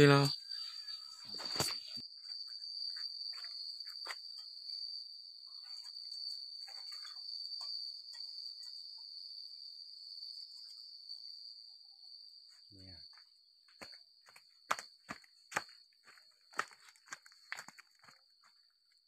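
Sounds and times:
high-pitched insect drone: 0:00.0 - 0:13.2.

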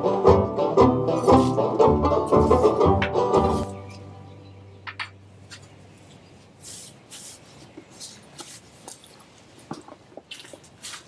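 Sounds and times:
knife scraping through dry grass: 0:01.1 - 0:01.7, 0:02.3 - 0:04.0, 0:06.6 - 0:09.0, 0:10.4 - 0:11.0.

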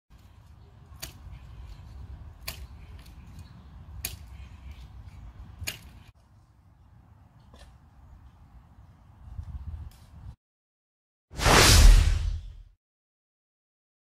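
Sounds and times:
wind rumble on microphone: 0:09.2 - 0:10.4.

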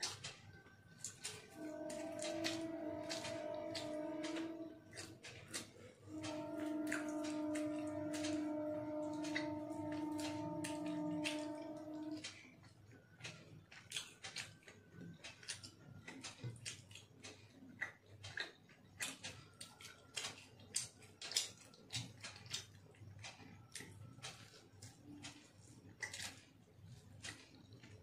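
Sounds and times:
fingers mixing food on glass plate: 0:00.0 - 0:28.0
chewing smacks: 0:06.6 - 0:28.0.

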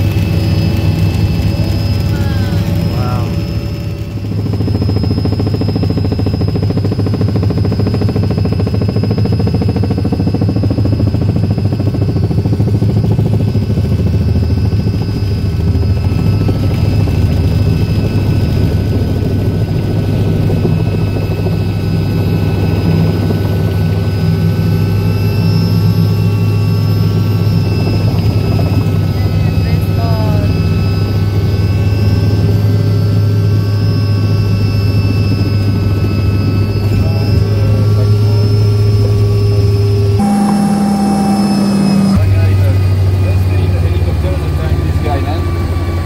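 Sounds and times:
helicopter rotor and engine drone: 0:00.0 - 0:46.0
thin high whine: 0:36.1 - 0:43.7.

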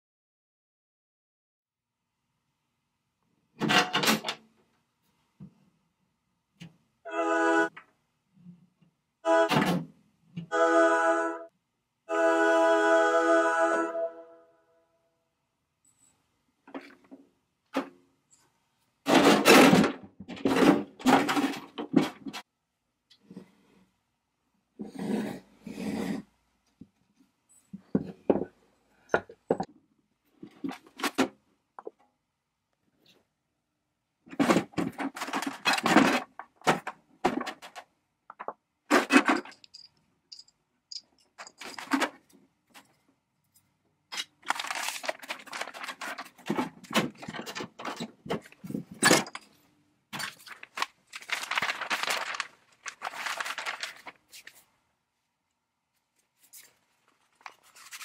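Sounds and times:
plastic bag crinkling: 0:44.4 - 0:46.5, 0:50.2 - 0:54.5.

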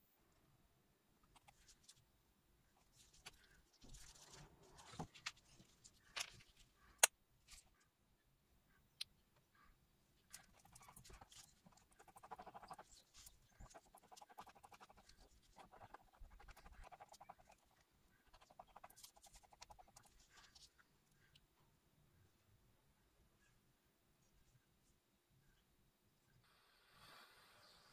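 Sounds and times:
stick stirring thick paint: 0:10.3 - 0:20.7.

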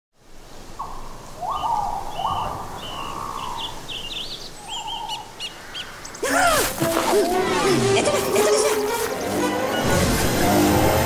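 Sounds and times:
bird trill: 0:00.8 - 0:06.3.

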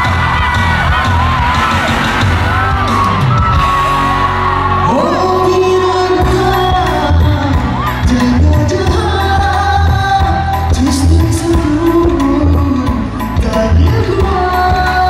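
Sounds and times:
audience whooping: 0:00.0 - 0:08.6
band playing: 0:00.0 - 0:15.0
man singing: 0:04.8 - 0:15.0.

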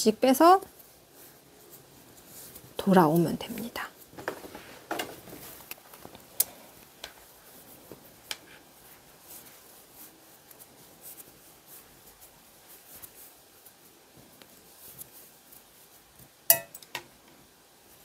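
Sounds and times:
yarn rustling: 0:00.0 - 0:16.5.

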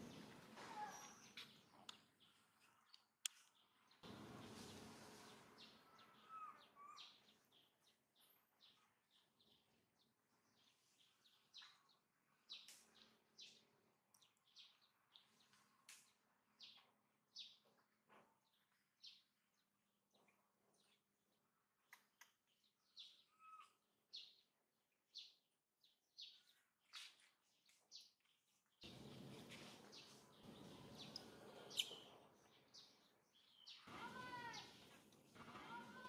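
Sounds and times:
rustling noise: 0:04.1 - 0:05.6.

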